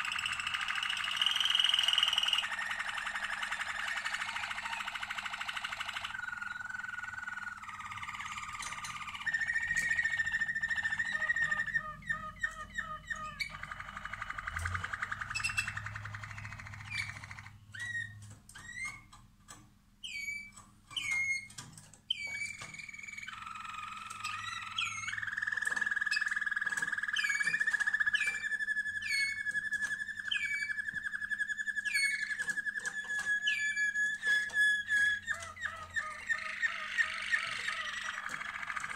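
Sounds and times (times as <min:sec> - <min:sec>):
canaries singing trills: 0:00.0 - 0:38.9.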